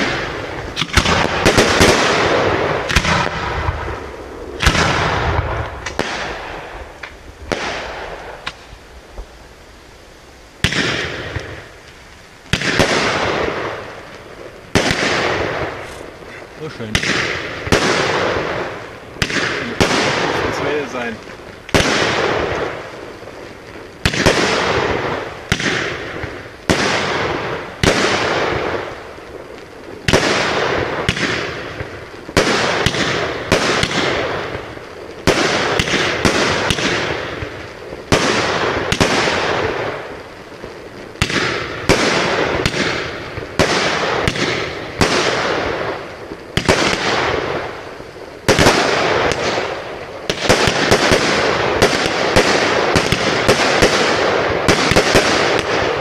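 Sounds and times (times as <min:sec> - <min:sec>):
fireworks banging and crackling: 0:00.0 - 0:56.0.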